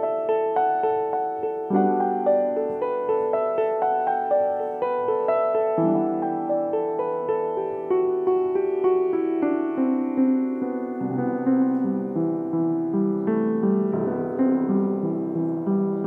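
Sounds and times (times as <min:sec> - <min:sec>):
piano piece: 0:00.0 - 0:16.0.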